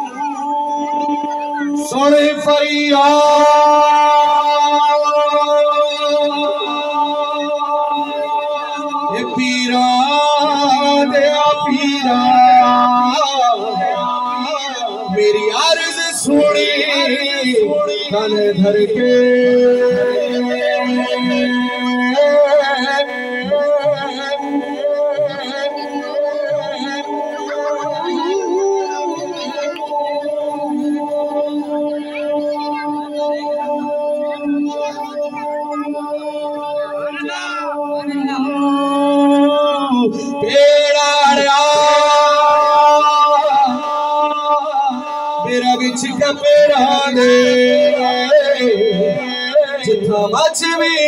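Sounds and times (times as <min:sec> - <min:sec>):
man singing into microphone: 0:00.0 - 0:51.0.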